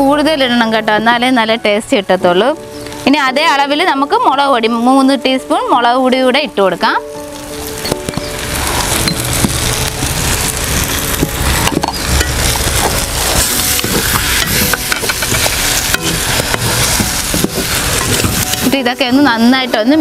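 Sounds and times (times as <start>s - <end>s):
food sizzling in oil: 0.0s - 20.0s.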